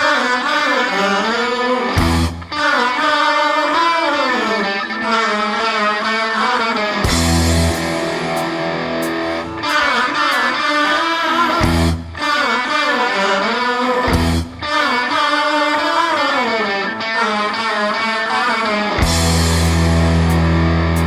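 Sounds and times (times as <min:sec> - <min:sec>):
electric guitar lead line: 0:00.0 - 0:21.0
blues-rock band playing: 0:01.0 - 0:03.1, 0:04.4 - 0:15.6, 0:16.4 - 0:21.0.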